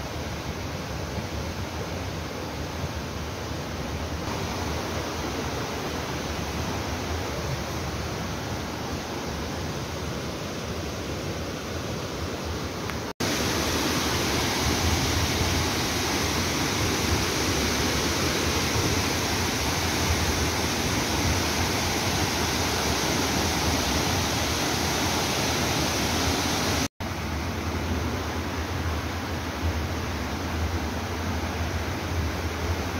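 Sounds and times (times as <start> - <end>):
rocky stream: 0.0 - 32.9
waterfall rushing: 4.2 - 9.3, 13.2 - 26.9.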